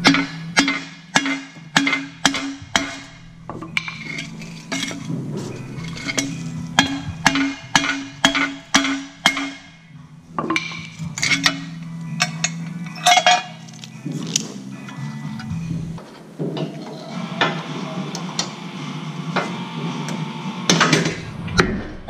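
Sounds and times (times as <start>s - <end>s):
hammer striking metal: 0.0s - 16.0s.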